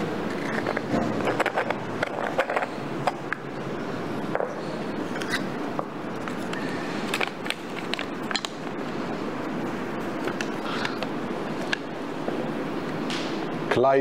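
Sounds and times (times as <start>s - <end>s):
murmur of room noise: 0.0s - 14.0s.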